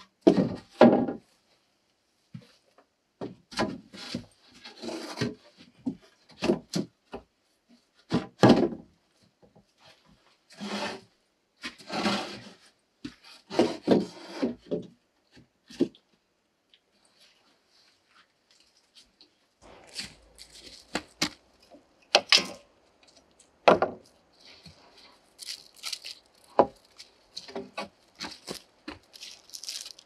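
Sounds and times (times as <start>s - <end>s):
board scraping on board: 10.6s - 11.0s, 11.8s - 12.6s
wooden boards knocking: 23.6s - 24.0s.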